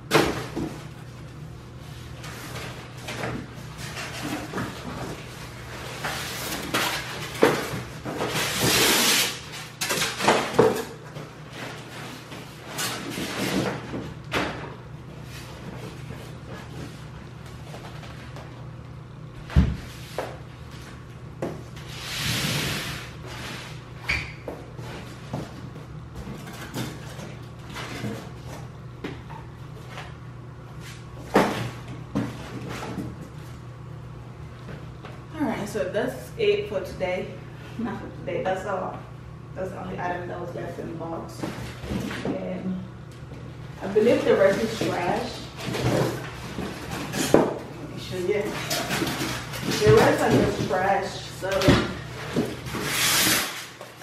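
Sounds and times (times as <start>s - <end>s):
styrofoam scraping cardboard box: 52.6s - 53.9s.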